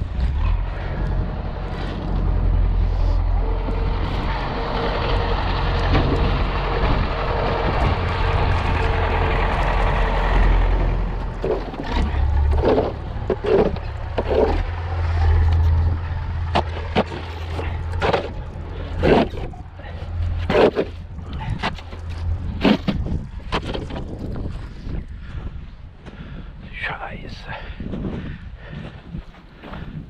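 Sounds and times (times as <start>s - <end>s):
tractor diesel engine running: 0.0s - 30.0s
snow pusher scraping ground: 16.5s - 24.1s.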